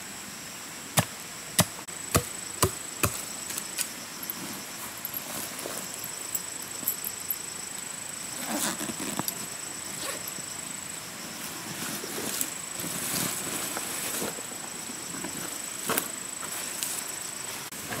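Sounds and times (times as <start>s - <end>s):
steady high-pitched buzz: 0.0s - 18.0s
nylon fabric rustling: 8.4s - 9.3s.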